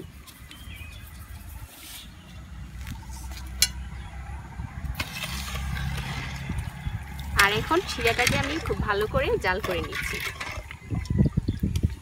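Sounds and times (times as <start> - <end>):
low steady rumble: 2.4 - 10.8
metal ladle stirring in pot: 4.8 - 10.9.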